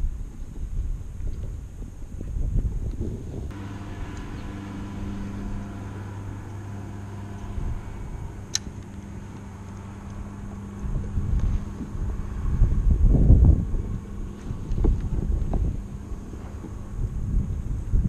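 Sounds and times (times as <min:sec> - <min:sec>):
wind buffeting microphone: 0:00.0 - 0:18.0
engine hum: 0:02.9 - 0:18.0
sharp click: 0:08.4 - 0:09.0.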